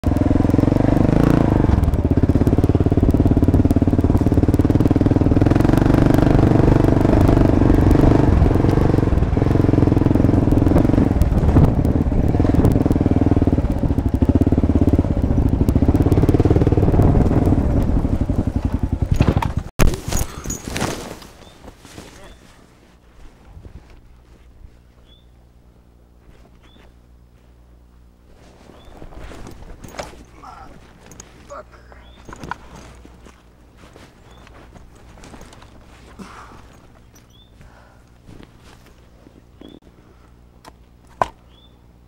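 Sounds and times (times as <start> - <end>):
motorcycle engine running: 0.0 - 21.6, 27.0 - 39.8
motorcycle crashing knocks and clatter: 18.4 - 21.2.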